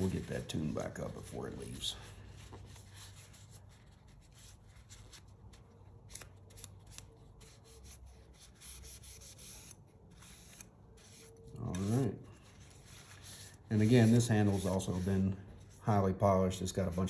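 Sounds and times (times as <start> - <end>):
rubbing and handling noises: 0.0 - 17.0.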